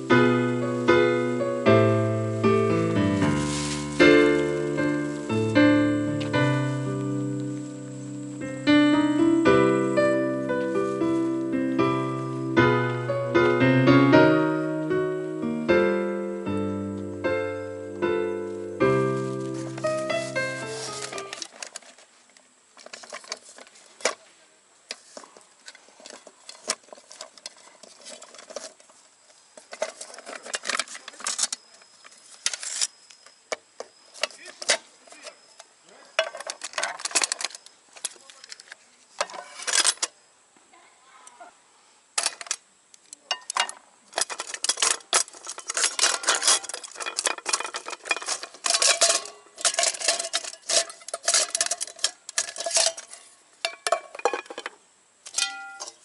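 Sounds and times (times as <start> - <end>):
metal pots clinking and clattering: 43.3 - 56.0.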